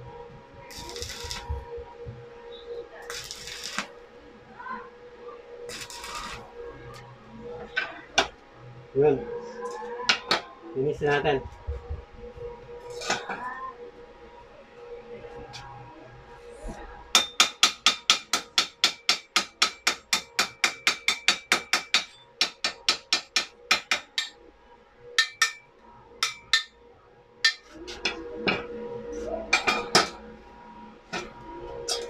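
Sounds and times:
hammer tapping on metal: 17.2s - 24.3s, 25.2s - 25.6s.

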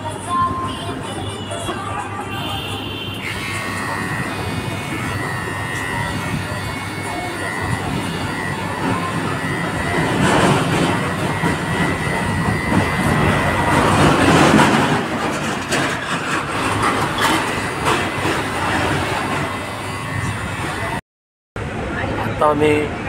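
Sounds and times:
electric hair clipper buzzing: 2.7s - 14.3s, 17.5s - 21.0s.

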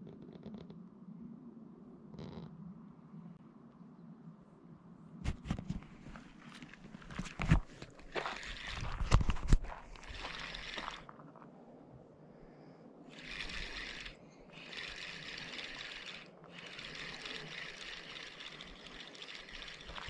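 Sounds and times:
fishing reel whirring: 8.1s - 9.2s, 10.0s - 11.1s, 13.1s - 20.0s.

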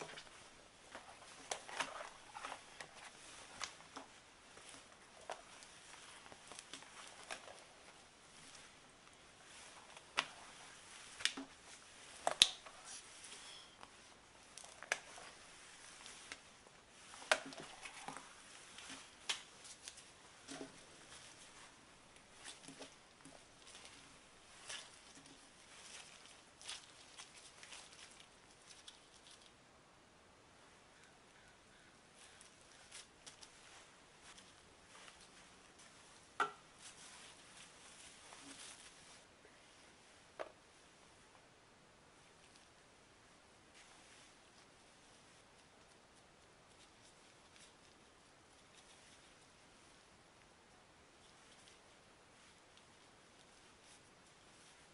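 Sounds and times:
soft rubbing: 0.0s - 29.5s, 32.2s - 41.2s, 43.7s - 50.3s, 51.0s - 54.9s
cling wrap crinkling: 0.0s - 29.6s
gloves rustling: 0.0s - 29.6s, 31.0s - 41.3s, 43.5s - 54.9s.

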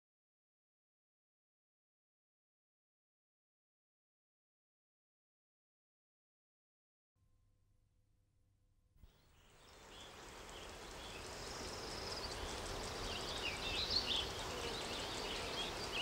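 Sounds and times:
small birds chirping: 9.0s - 16.0s
steady background hiss: 9.1s - 16.0s.

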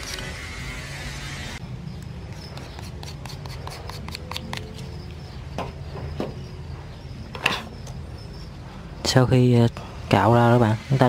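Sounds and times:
blade scraping matchbox: 2.4s - 4.9s.

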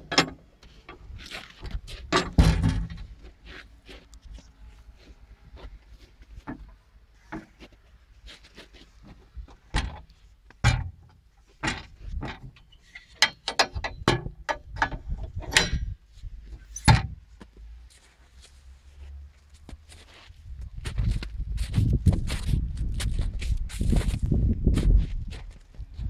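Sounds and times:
metal latch clicks and clanks: 0.0s - 1.0s, 2.1s - 3.0s, 9.7s - 16.0s, 16.8s - 17.2s.

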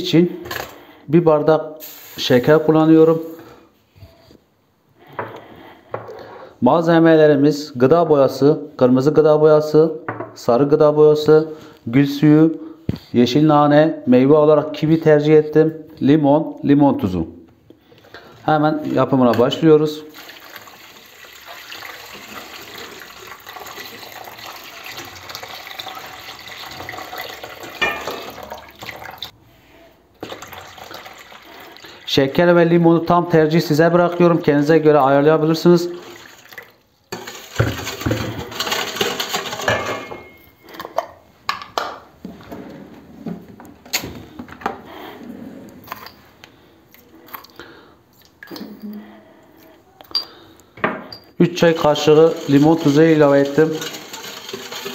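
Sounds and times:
water pouring into a metal bowl: 20.1s - 29.3s, 30.2s - 32.1s, 36.0s - 39.8s, 51.7s - 54.9s
spoon clinking against jar: 50.1s - 50.4s.

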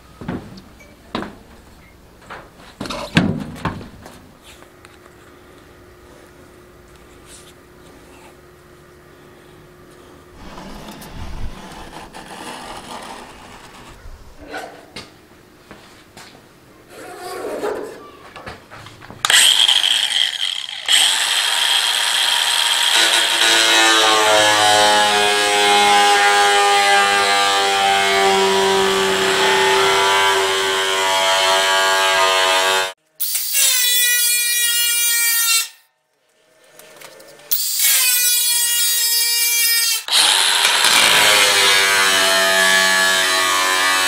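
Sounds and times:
angle grinder cutting sheet steel: 10.4s - 14.0s, 19.3s - 35.9s, 37.5s - 44.0s
angle grinder whining: 19.2s - 33.0s, 37.6s - 44.0s.

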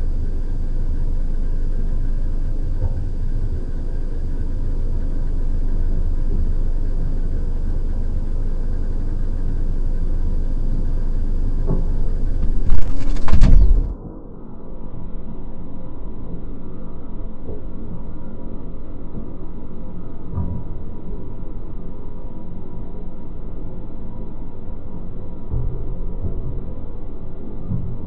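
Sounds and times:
faint high whine: 0.0s - 25.1s
low industrial rumble: 0.0s - 28.0s
loud knocks and rattling: 11.7s - 14.0s.

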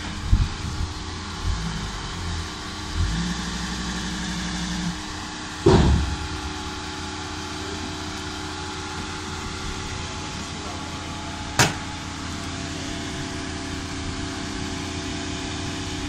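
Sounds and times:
motorhome engine idling: 0.0s - 16.0s
cab door click: 11.6s - 11.8s.

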